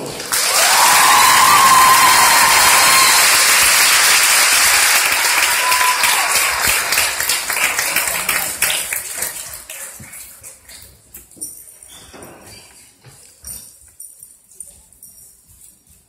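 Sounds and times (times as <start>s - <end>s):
crowd applauding and cheering: 0.0s - 10.3s.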